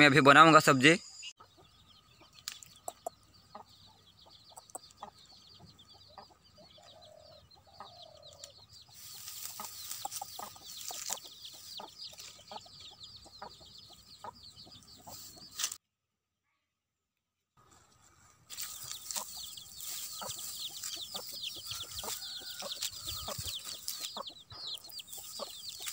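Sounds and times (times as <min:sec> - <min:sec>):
high chirping: 0:00.1 - 0:15.7, 0:18.5 - 0:25.9
chickens clucking: 0:01.4 - 0:15.8, 0:17.6 - 0:25.9
stems snapping as plucked: 0:02.4 - 0:03.1, 0:15.6 - 0:15.8
leaves and plastic bag rustling: 0:08.9 - 0:12.5, 0:15.1 - 0:15.8, 0:17.6 - 0:24.3, 0:25.1 - 0:25.9.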